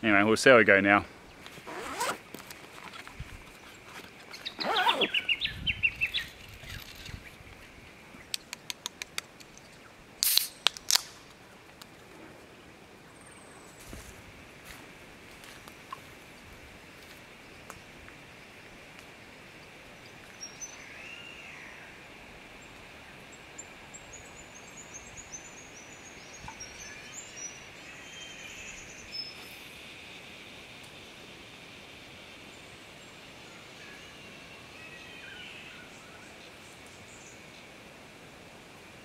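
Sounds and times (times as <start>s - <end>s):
bird calls: 2.9s - 7.4s
quick high falling bird chirps: 4.4s - 6.3s.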